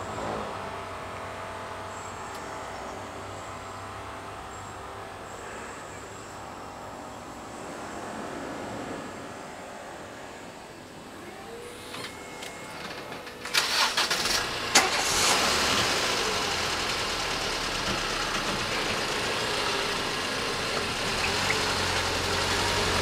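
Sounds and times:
car engines moving off: 0.0 - 23.0
low engine hum: 0.0 - 23.0
crossing barrier clattering: 11.7 - 14.9.

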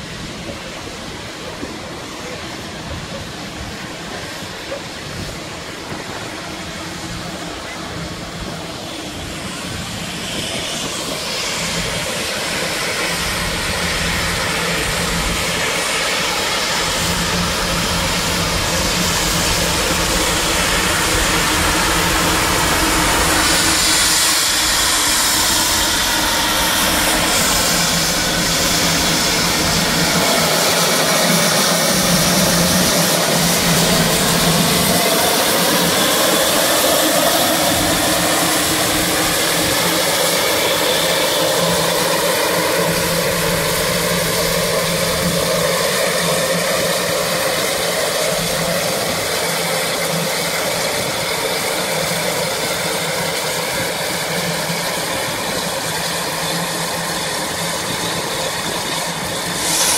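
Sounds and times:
steam locomotive hissing: 0.0 - 59.9.

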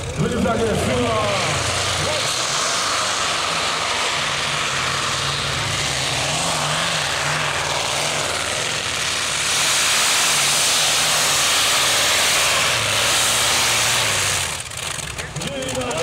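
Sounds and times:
tractor engine running flat out: 0.0 - 16.0.

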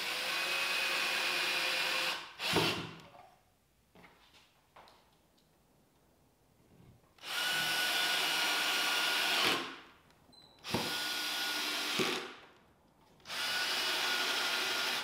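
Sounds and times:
cordless drill driving screws: 0.0 - 3.0, 7.2 - 9.8, 10.6 - 12.4, 13.2 - 15.0.

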